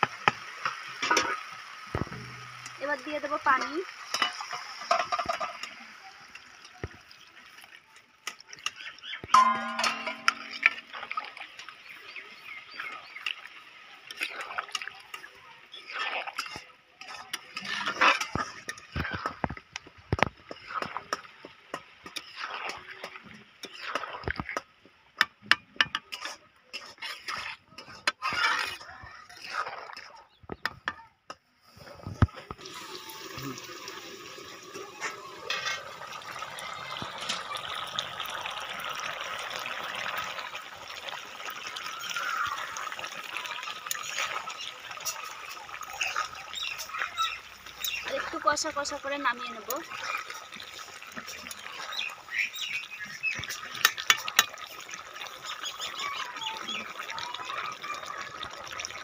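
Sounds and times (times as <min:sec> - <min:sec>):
water poured into a wok: 0:00.0 - 0:24.7, 0:25.9 - 0:30.2, 0:31.6 - 0:59.0
spatula scraping metal pan: 0:14.1 - 0:19.6, 0:20.2 - 0:24.6, 0:25.8 - 0:30.8, 0:35.0 - 0:35.9, 0:45.0 - 0:54.7.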